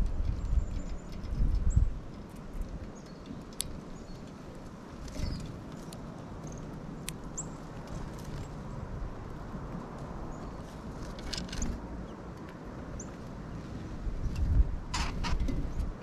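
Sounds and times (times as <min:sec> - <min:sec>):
wind rumbling on microphone: 0:00.0 - 0:16.0.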